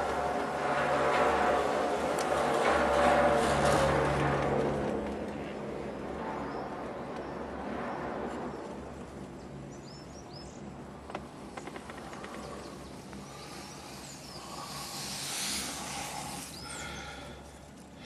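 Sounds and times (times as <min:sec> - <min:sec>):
chairlift humming: 0:11.3 - 0:17.8.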